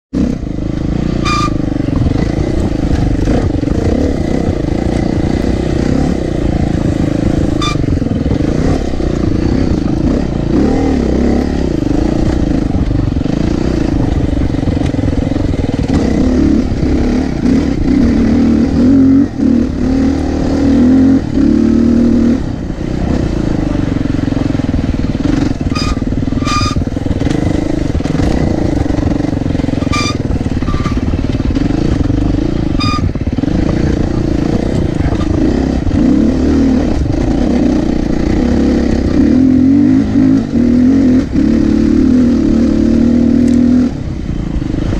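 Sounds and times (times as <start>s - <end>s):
dirt bike engine revving: 0.1s - 44.9s.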